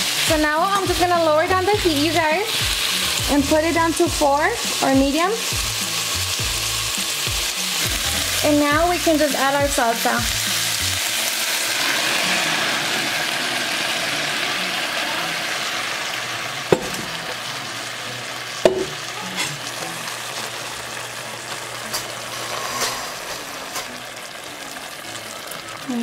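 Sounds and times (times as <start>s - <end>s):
meat sizzling in a pot: 0.0s - 26.0s
sauce pouring: 10.3s - 15.7s.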